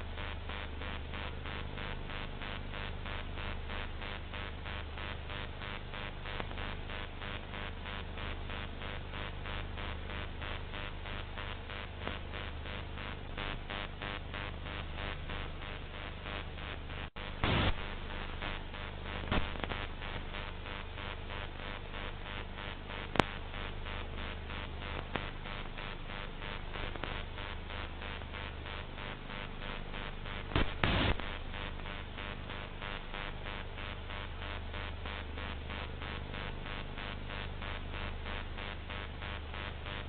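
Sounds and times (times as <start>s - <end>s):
low mains hum: 0.0s - 40.0s
steady static hiss: 0.0s - 40.0s
short crackle: 17.4s - 17.9s, 19.2s - 19.9s, 30.5s - 31.4s.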